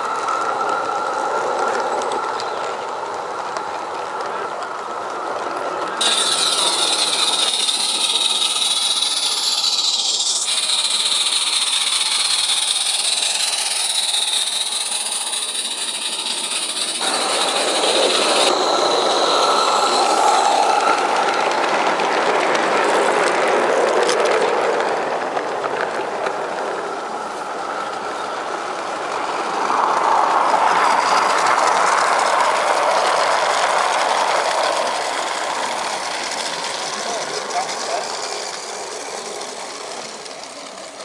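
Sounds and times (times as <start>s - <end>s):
model trains running on track: 0.0s - 41.0s
locomotive steam hiss: 6.0s - 22.5s, 30.7s - 41.0s.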